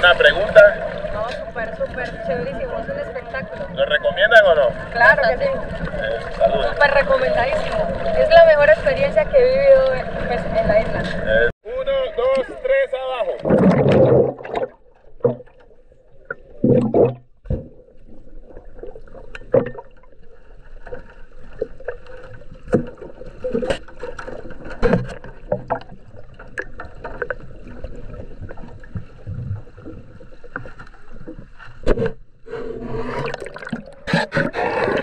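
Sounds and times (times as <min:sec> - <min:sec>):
underwater water noise: 0:00.0 - 0:35.0
muffled rush of bubbles: 0:13.2 - 0:20.4, 0:32.5 - 0:35.0.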